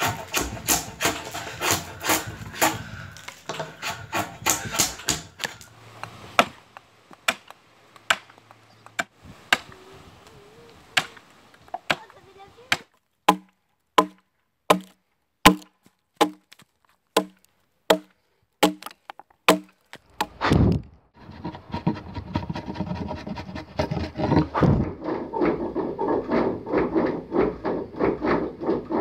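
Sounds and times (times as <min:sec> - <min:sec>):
axe chopping wood: 0:00.0 - 0:05.7, 0:06.4 - 0:09.7, 0:11.0 - 0:20.8
hatchet cuts and rasping: 0:00.0 - 0:09.7, 0:11.8 - 0:20.6, 0:21.2 - 0:29.0.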